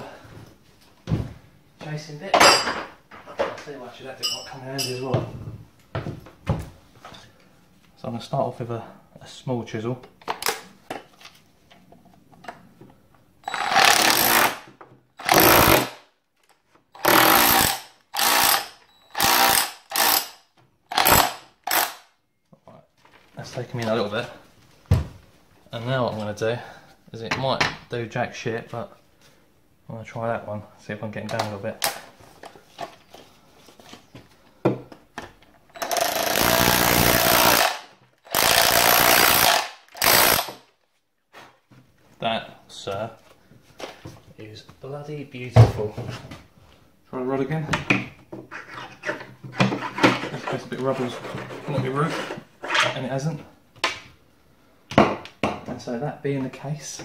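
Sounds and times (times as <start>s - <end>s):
hammer drill chiseling into wall: 13.4s - 16.0s, 16.9s - 22.1s, 35.7s - 40.6s.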